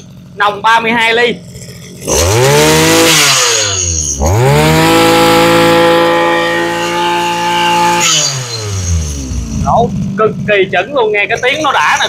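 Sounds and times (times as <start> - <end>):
brush cutter engine revving: 0.0 - 10.4.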